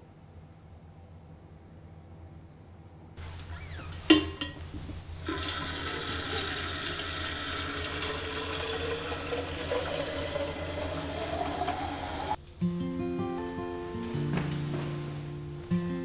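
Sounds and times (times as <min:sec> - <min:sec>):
water running into watering can: 0:03.2 - 0:12.4.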